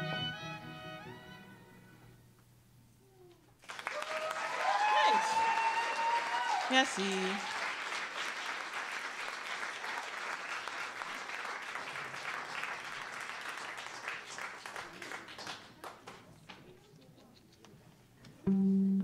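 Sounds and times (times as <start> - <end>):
audience applauding: 3.6 - 16.4.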